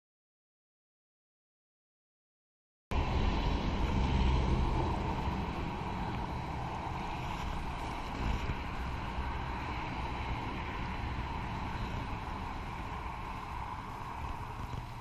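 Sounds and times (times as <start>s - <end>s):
wind buffeting microphone: 2.9s - 15.0s.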